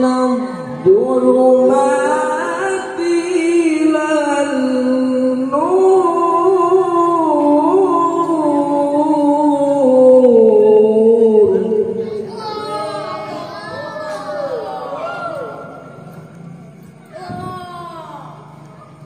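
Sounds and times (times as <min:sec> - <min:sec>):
man reciting melodically into microphone: 0:00.0 - 0:12.2.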